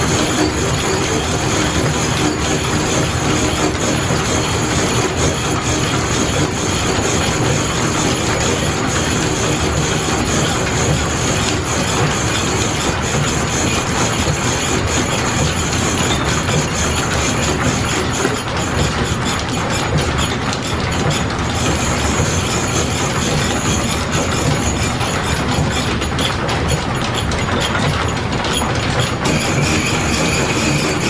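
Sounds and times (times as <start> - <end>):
drive belt clattering: 0.0 - 31.0
milling machine saw cutting: 29.2 - 31.0.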